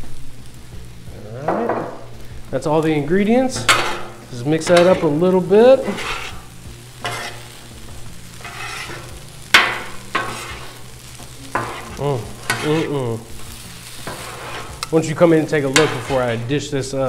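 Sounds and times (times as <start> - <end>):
food sizzling: 0.0 - 17.0
metal spatulas scraping griddle: 3.5 - 7.6, 8.3 - 16.6.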